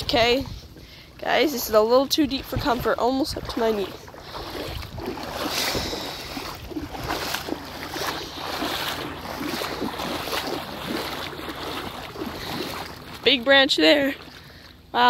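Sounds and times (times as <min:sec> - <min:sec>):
water sloshing from wading: 0:00.0 - 0:15.0.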